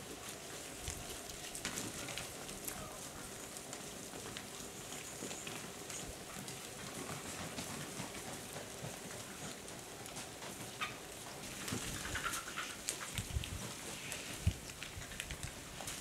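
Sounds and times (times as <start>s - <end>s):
wings crackling and rustling: 0.0s - 16.0s
vultures squabbling: 11.7s - 13.2s.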